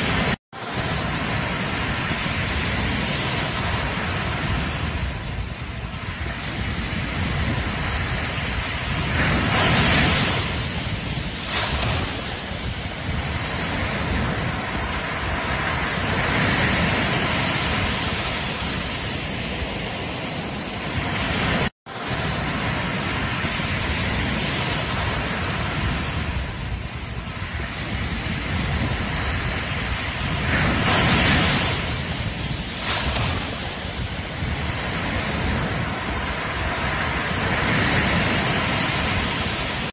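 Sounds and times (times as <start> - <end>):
ocean surf washing onto beach: 0.0 - 39.9.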